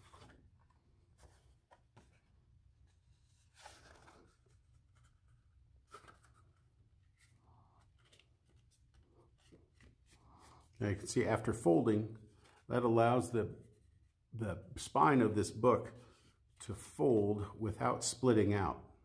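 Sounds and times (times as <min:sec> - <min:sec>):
card being folded rustles: 0:00.0 - 0:10.8, 0:12.2 - 0:12.7.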